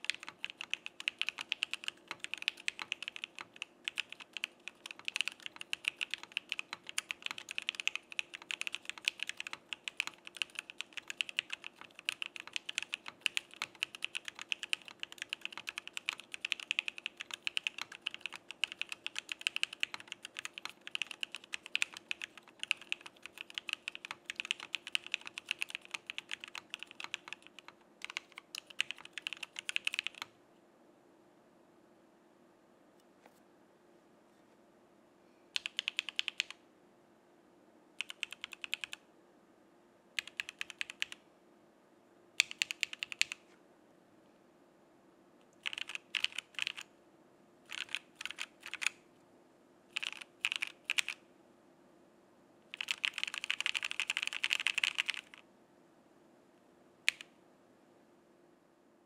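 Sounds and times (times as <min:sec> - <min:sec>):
mechanical keyboard typing: 0:00.0 - 0:30.3, 0:35.6 - 0:36.6, 0:38.0 - 0:39.0, 0:40.2 - 0:41.2, 0:42.4 - 0:43.4, 0:45.6 - 0:46.9, 0:47.7 - 0:49.0, 0:50.0 - 0:51.2, 0:52.7 - 0:55.4, 0:57.1 - 0:57.3.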